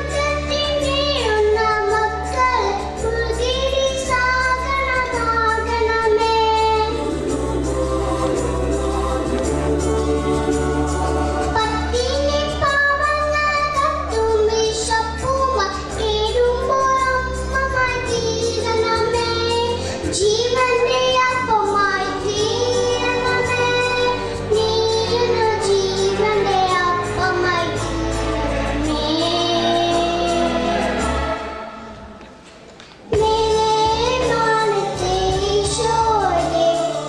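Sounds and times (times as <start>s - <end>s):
girl singing into a microphone: 0.0s - 7.1s, 11.5s - 28.0s, 33.0s - 37.0s
karaoke backing track: 0.0s - 37.0s.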